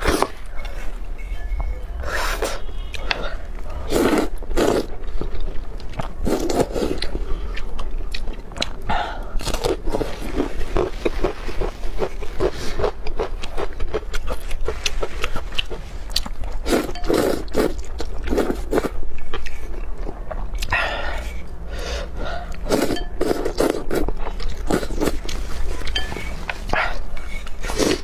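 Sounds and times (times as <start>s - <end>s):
noodle slurping: 3.9s - 4.9s, 27.2s - 28.0s
chewing with wet mouth clicks: 4.6s - 9.6s, 17.0s - 20.8s.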